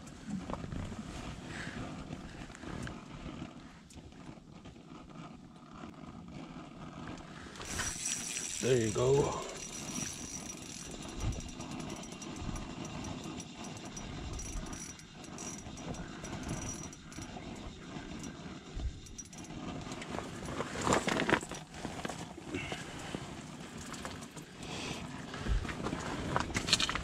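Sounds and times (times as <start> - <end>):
fishing reel spinning: 7.1 - 25.1.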